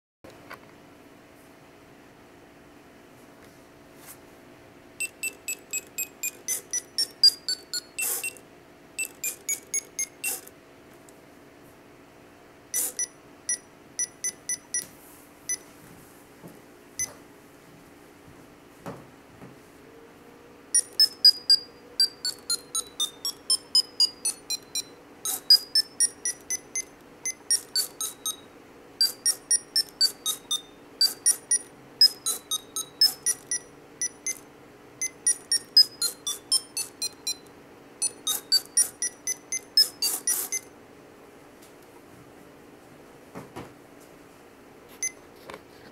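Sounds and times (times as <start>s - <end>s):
piezo buzzer beeping: 5.0s - 8.4s, 9.0s - 10.5s, 12.7s - 14.9s, 20.7s - 40.7s.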